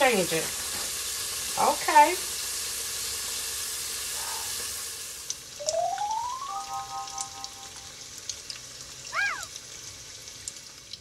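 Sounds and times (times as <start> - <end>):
wings sizzling in oil: 0.0 - 11.0
rising tone and chord: 5.6 - 8.0.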